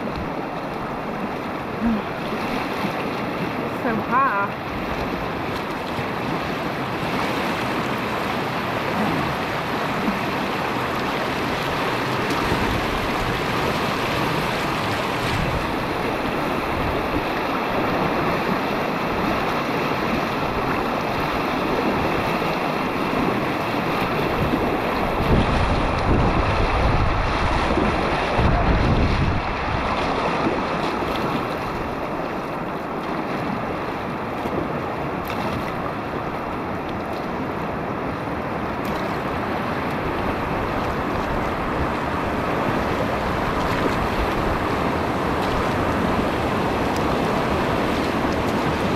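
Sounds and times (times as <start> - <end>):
wind buffeting microphone: 0.0 - 36.5
whitewater rushing: 0.0 - 48.9.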